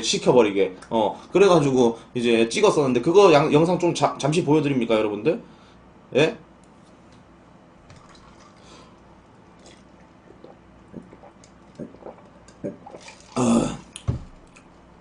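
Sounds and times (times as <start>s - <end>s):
man gulping from a can: 7.9s - 14.6s.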